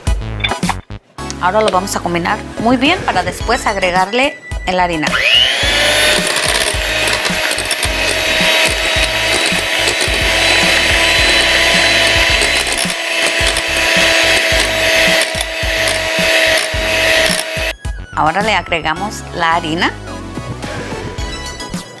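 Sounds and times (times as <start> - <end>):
electric hand mixer running: 5.1 - 17.8.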